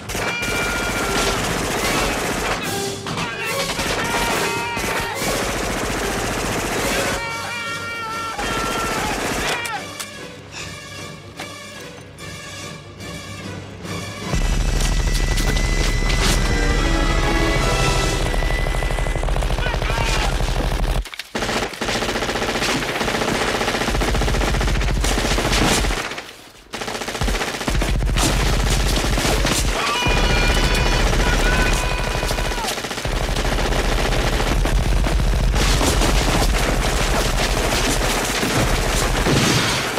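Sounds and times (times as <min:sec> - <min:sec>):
machine-gun fire: 0:00.0 - 0:02.7, 0:03.6 - 0:07.2, 0:18.0 - 0:39.9
music: 0:00.0 - 0:20.6, 0:29.0 - 0:39.9.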